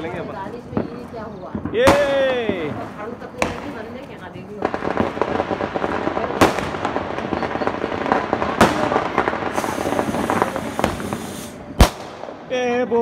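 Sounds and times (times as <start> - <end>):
firecracker bangs: 0.0 - 12.6
firecrackers crackling: 0.0 - 13.0
fuse hissing: 9.5 - 11.7.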